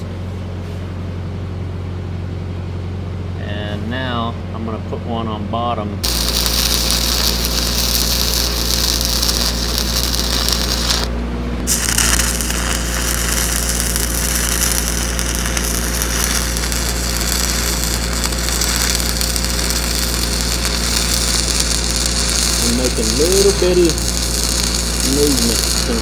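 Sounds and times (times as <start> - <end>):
steady low hum: 0.0 - 26.0
welding arc crackling and sizzling: 6.0 - 26.0.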